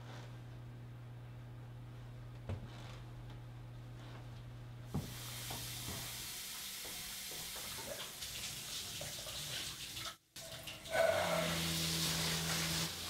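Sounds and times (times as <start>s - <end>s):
tap water running into sink: 5.0s - 13.0s.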